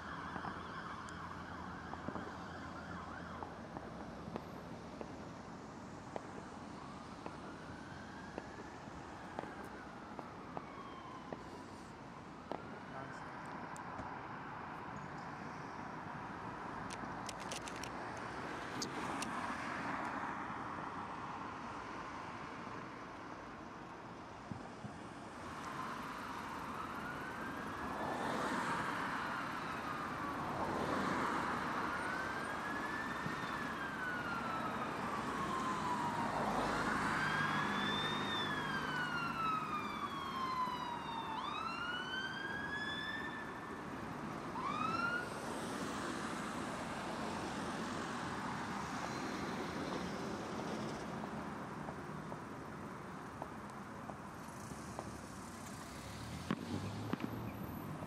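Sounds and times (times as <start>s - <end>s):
emergency siren wailing: 0.0s - 4.4s, 6.2s - 13.8s, 25.4s - 50.8s
road traffic noise: 0.0s - 58.0s.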